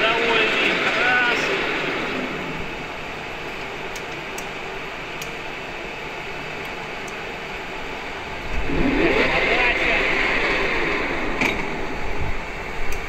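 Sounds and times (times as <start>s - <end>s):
lathe humming and hissing: 0.0s - 13.0s.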